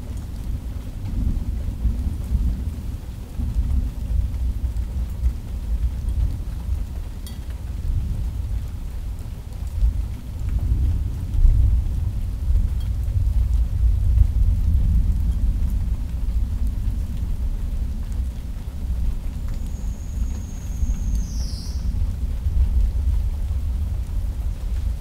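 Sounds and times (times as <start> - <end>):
faint rain hiss: 0.0 - 25.0
rolling thunder rumble: 9.8 - 25.0.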